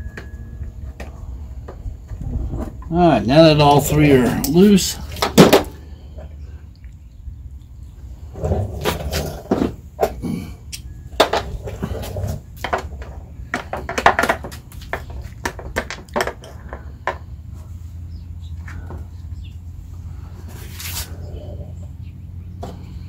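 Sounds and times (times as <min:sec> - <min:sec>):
steady low hum: 0:00.0 - 0:23.0
hand tools clicking and knocking: 0:09.0 - 0:17.3.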